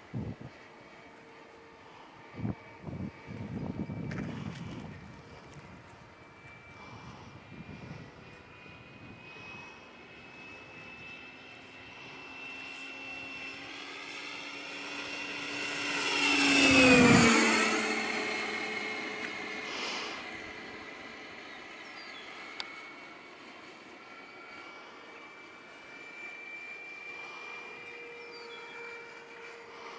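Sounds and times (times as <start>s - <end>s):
model jet fan whine: 0.0s - 29.9s.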